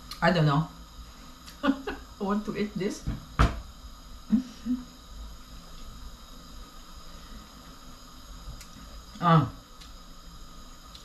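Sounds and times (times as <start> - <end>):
faint background hum: 0.0 - 11.0
woman humming: 4.3 - 4.9.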